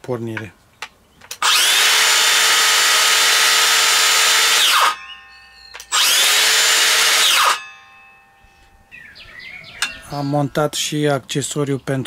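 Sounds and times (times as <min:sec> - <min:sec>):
circular saw whining: 0:01.4 - 0:10.6.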